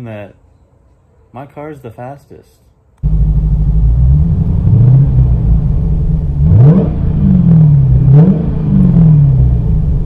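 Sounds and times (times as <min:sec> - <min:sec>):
car engine revving: 0:03.0 - 0:10.0
steady low rumble: 0:03.0 - 0:10.0.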